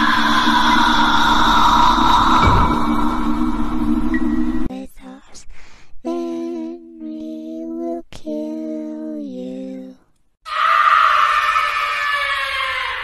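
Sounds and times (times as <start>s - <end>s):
loud scream falling in pitch: 0.0s - 4.0s, 10.4s - 13.0s.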